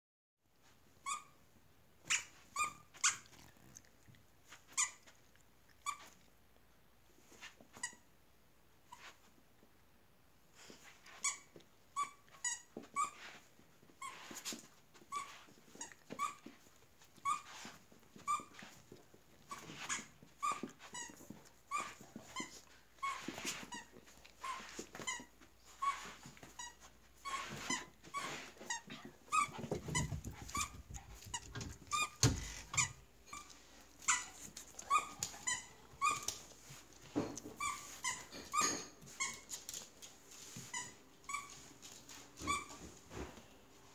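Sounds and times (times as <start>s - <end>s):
squeaky toy squeaking: 1.0s - 1.4s, 2.0s - 3.3s, 19.5s - 36.5s, 37.6s - 39.5s.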